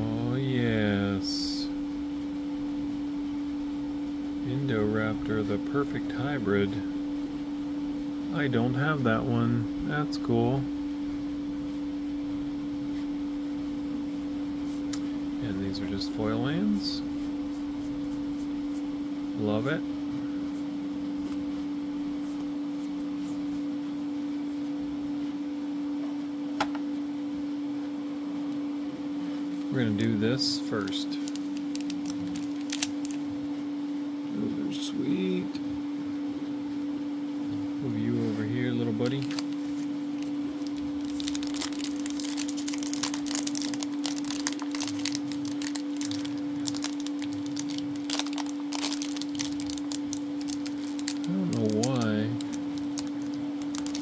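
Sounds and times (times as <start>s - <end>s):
room hum: 0.0s - 54.0s
trading cards being handled: 29.7s - 33.2s, 38.2s - 54.0s
foil wrapper crinkling: 30.8s - 33.3s, 39.0s - 54.0s.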